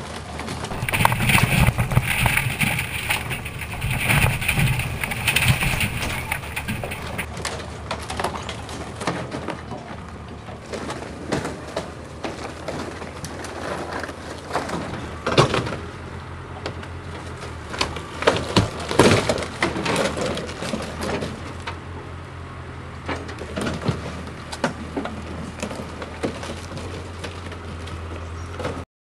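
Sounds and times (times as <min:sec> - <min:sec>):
excavator engine hum: 0:00.2 - 0:07.3
boat hull cracking and splintering: 0:00.6 - 0:07.3.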